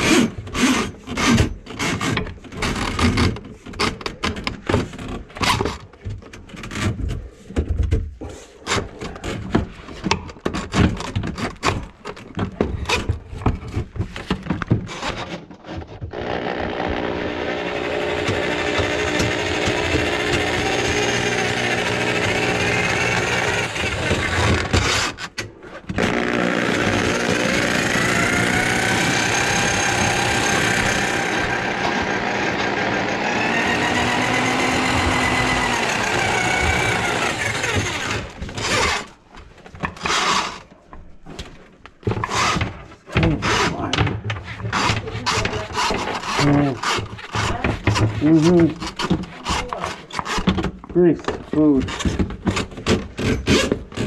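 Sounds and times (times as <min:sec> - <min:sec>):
drain auger motor whine: 0:16.1 - 0:24.7, 0:26.0 - 0:38.4.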